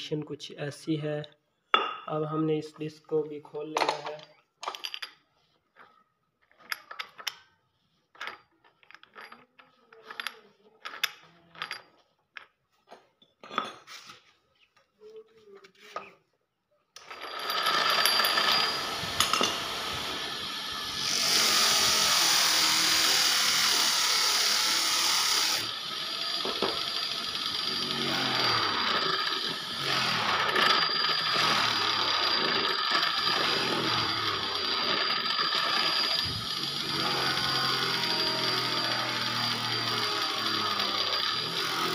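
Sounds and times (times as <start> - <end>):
metal clinks and knocks: 3.8 - 7.5, 8.1 - 12.6
bench grinder running: 17.0 - 41.9.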